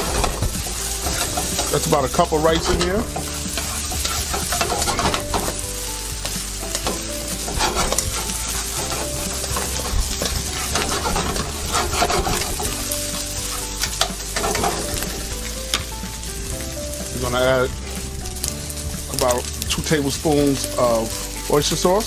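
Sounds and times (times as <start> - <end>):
spatula scraping a pan: 0.0 - 15.9
food sizzling in a wok: 0.0 - 22.0.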